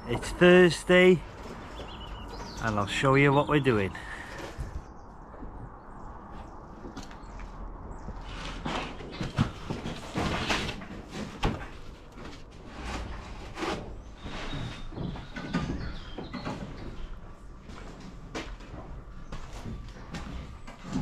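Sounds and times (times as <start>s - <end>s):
knocks scrapes and rustles: 8.1s - 21.0s.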